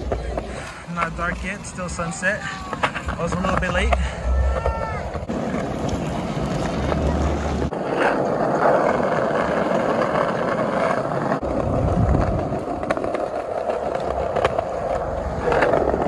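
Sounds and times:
skate wheels rolling on pavement: 0.0s - 16.0s.

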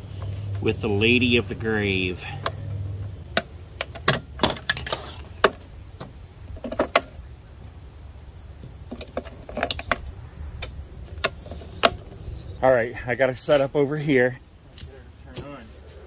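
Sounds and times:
sharp plastic clicks: 3.3s - 7.1s.

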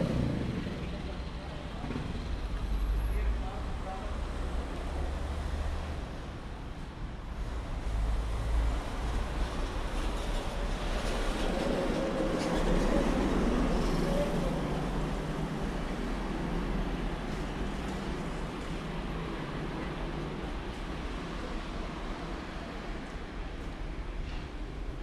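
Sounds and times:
cars and motorcycles passing: 0.0s - 6.1s.

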